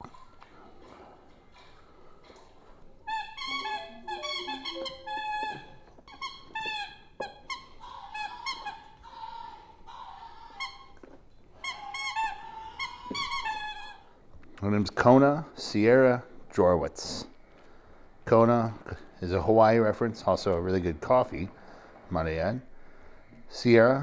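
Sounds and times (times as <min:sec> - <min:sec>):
dog toy squeaking: 0:03.0 - 0:09.0, 0:10.4 - 0:11.0, 0:11.6 - 0:14.1.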